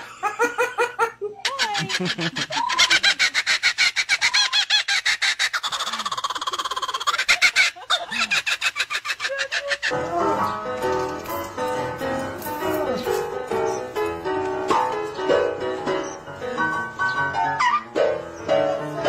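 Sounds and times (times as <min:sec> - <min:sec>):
kookaburra laughing call: 0:00.3 - 0:10.0.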